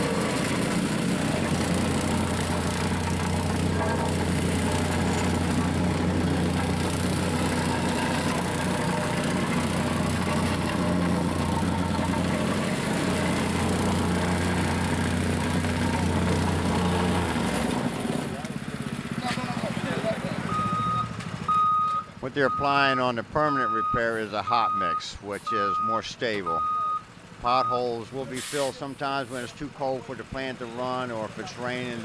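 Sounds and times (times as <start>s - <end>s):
plate compactor droning: 0.0s - 22.7s.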